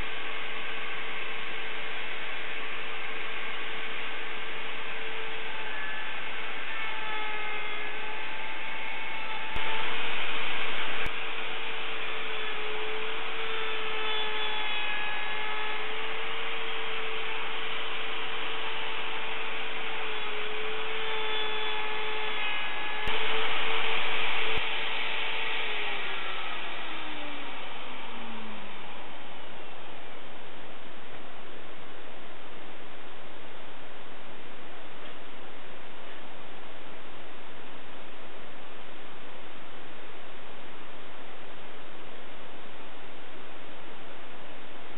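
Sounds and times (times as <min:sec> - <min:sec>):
router bit cutting wood: 0:00.0 - 0:30.8
router whining: 0:00.0 - 0:32.9.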